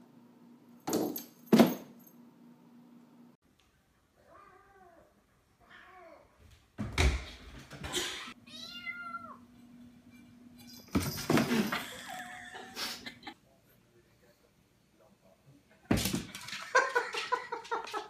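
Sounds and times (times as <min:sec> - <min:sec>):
cat meowing: 0:08.5 - 0:09.4.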